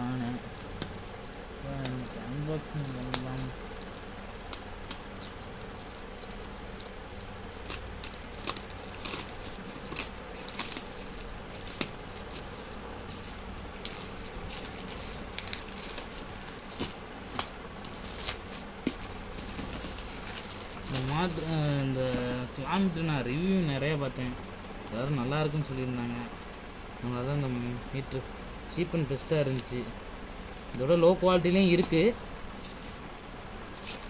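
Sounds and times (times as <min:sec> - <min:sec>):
plastic mailer crinkling: 0:04.9 - 0:22.9.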